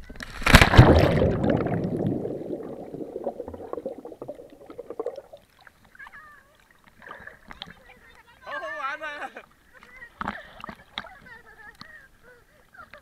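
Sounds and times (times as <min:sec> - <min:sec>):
underwater bubbling: 0:00.0 - 0:06.0
person splashing into water: 0:00.2 - 0:05.4.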